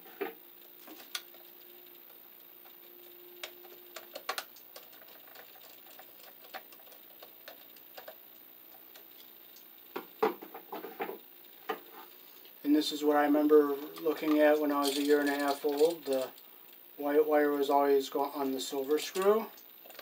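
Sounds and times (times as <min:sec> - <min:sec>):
faint hum: 0:00.0 - 0:20.0.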